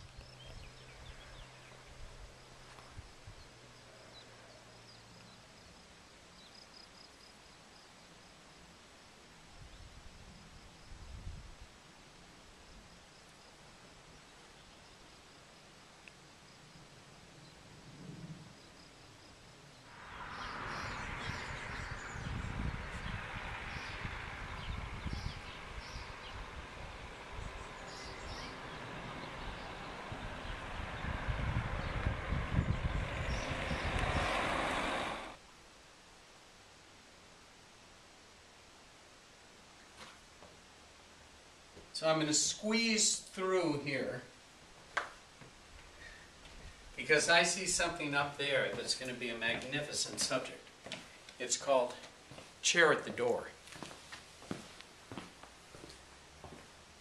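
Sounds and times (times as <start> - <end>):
wind rumbling on microphone: 0.0 - 3.6, 9.5 - 11.8, 19.8 - 35.4
distant birds chirping: 0.0 - 8.6, 18.5 - 35.4, 44.9 - 56.9
low rumble of wind: 0.0 - 51.5, 52.1 - 57.0
soft hiss: 33.1 - 57.0.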